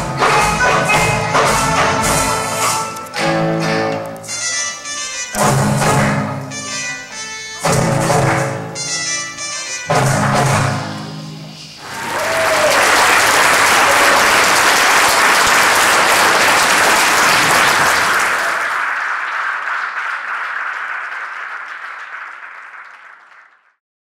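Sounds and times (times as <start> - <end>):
audience applause: 11.8 - 23.8.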